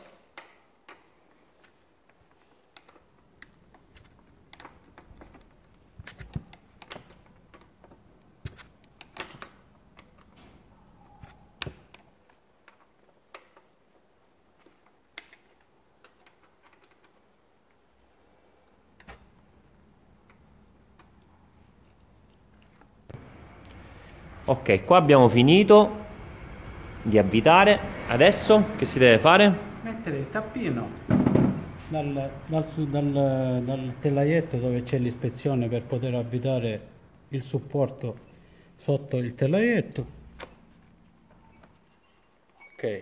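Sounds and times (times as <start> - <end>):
allen key clicking on bolt: 6.0 - 13.7.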